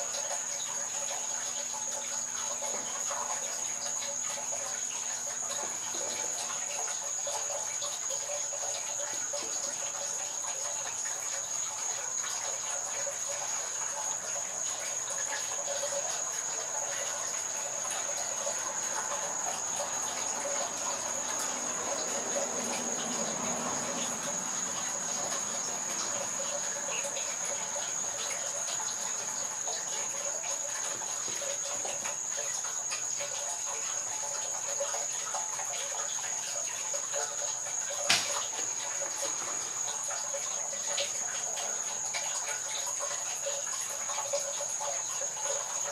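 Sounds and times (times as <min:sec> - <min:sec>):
insects trilling: 0:00.0 - 0:45.9
sharp click: 0:38.1 - 0:38.5.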